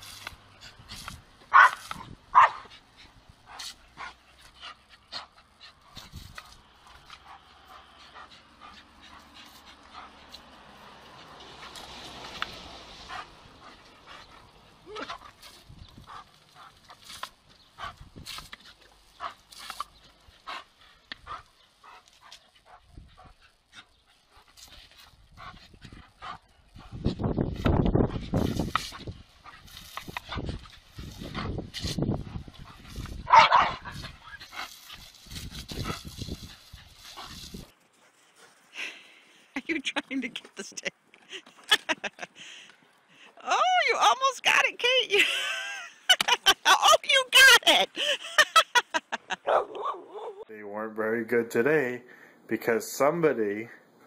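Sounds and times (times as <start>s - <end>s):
water spraying from hose nozzle: 0.0s - 25.2s, 27.5s - 37.7s
dog barking: 1.5s - 2.7s, 33.3s - 33.9s, 49.5s - 50.4s
dog yipping: 49.5s - 50.5s.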